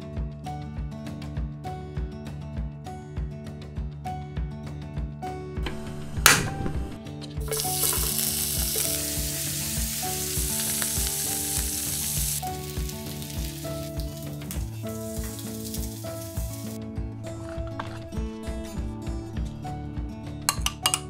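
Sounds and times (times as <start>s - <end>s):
bacon sizzling in a frying pan: 7.4s - 16.8s.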